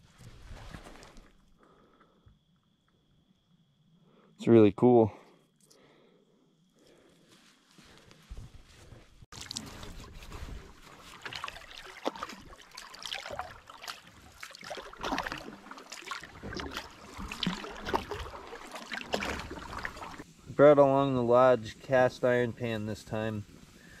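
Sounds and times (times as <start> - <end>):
paddle strokes splashing: 9.3 - 20.3
water lapping against hull: 9.3 - 20.3.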